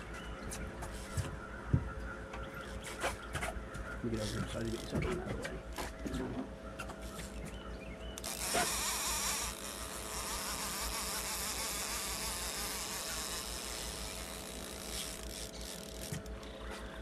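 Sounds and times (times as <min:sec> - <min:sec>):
steady hum: 0:00.0 - 0:17.0
fishing reel drag buzzing: 0:04.2 - 0:04.9, 0:08.2 - 0:16.6.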